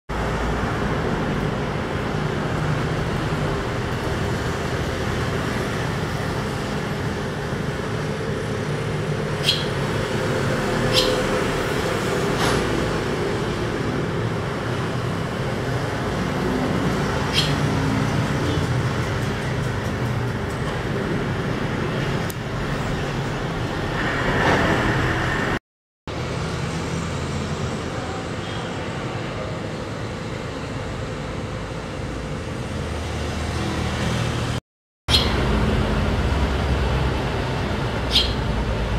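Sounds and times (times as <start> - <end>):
distant road traffic: 0.1 - 38.9
swallow chirp: 9.4 - 9.9, 10.8 - 11.4, 17.2 - 17.8, 35.1 - 35.4, 38.1 - 38.5.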